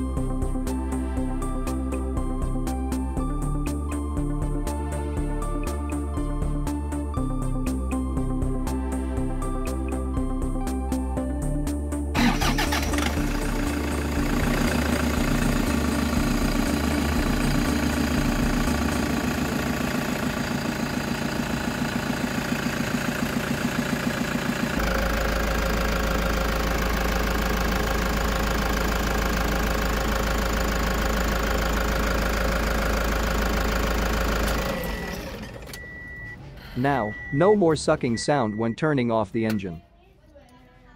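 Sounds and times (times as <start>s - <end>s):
diesel engine idling: 12.2s - 39.8s.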